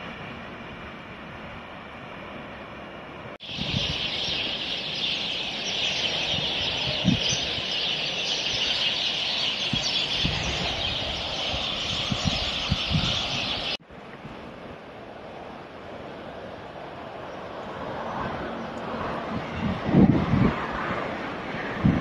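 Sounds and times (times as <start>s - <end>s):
wind thumps on microphone: 3.4s - 4.4s, 9.7s - 14.4s, 19.2s - 22.0s
many small birds chattering: 3.4s - 13.8s.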